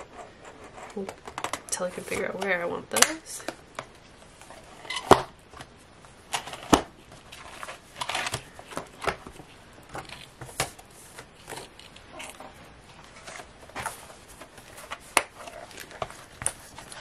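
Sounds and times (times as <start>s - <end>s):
paper pages rustling: 6.4s - 17.0s.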